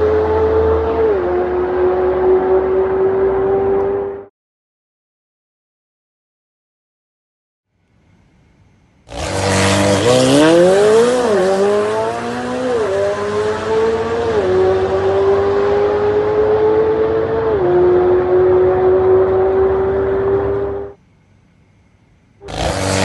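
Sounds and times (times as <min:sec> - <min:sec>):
sports car accelerating hard: 0:00.0 - 0:04.3, 0:09.1 - 0:21.0, 0:22.4 - 0:23.0.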